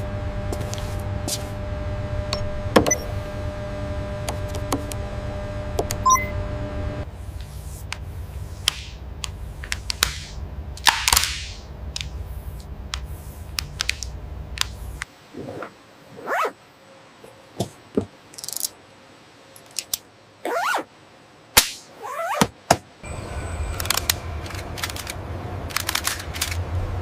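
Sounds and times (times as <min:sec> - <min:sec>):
steady machine hum: 0:00.0 - 0:15.0, 0:23.0 - 0:27.0.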